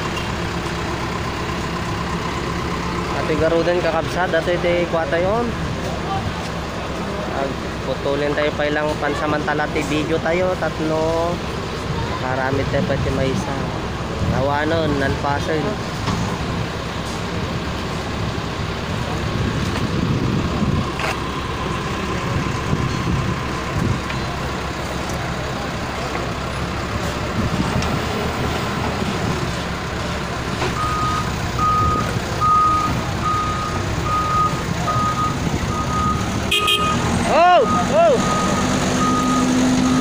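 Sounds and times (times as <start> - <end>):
heavy vehicle engine running: 0.0 - 40.0
reversing alarm beeping: 30.8 - 40.0.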